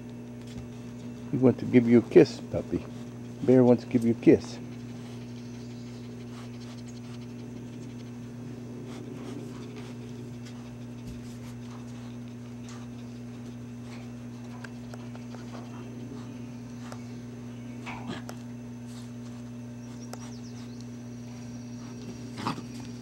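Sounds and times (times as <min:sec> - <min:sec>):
steady low hum: 0:00.0 - 0:23.0
dog panting: 0:01.4 - 0:17.1
faint clicks and scratches: 0:08.9 - 0:17.1.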